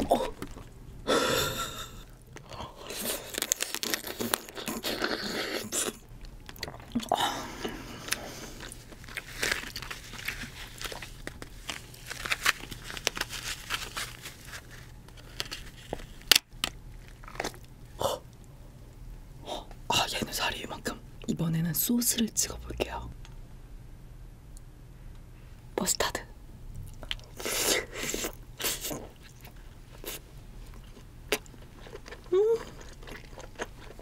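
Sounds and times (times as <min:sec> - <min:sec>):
crab shells cracking: 0:02.3 - 0:07.0.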